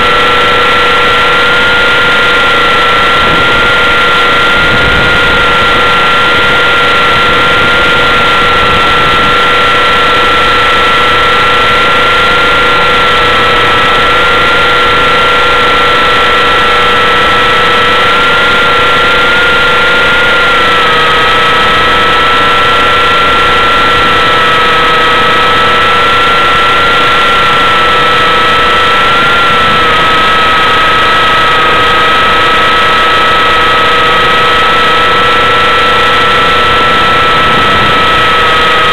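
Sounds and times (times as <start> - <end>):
helicopter motor whine: 0.0 - 38.9.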